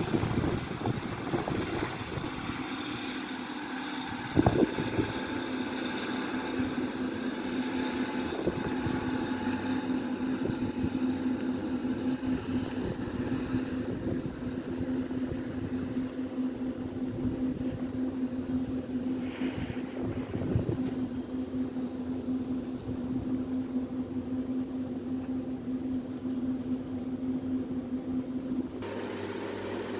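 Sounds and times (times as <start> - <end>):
wind buffeting microphone: 0.0 - 3.2, 4.0 - 5.4, 8.0 - 16.1, 19.6 - 21.2
diesel train engine drone: 0.0 - 29.9.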